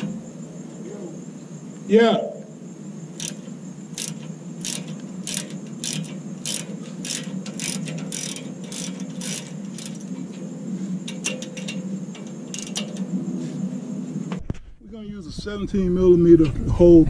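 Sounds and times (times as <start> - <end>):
steady low hum: 0.0 - 17.0
socket ratchet clicking: 3.2 - 10.4, 11.0 - 13.1.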